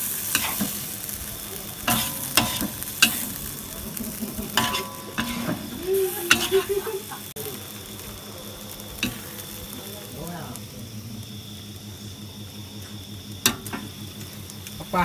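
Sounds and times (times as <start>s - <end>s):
noodles and beef sizzling in a wok: 0.0s - 15.0s
metal spatula striking a wok: 0.3s - 0.9s, 1.8s - 3.6s, 4.5s - 6.7s, 9.0s - 9.5s, 13.4s - 13.9s.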